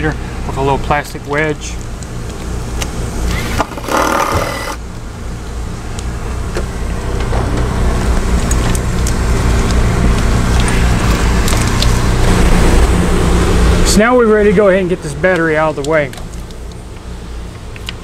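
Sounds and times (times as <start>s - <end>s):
steady low rumble: 0.0s - 18.0s
cordless power tool running: 3.2s - 4.8s.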